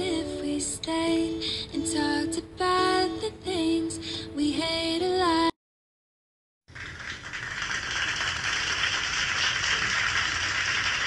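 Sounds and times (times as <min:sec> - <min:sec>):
person singing: 0:00.0 - 0:05.5.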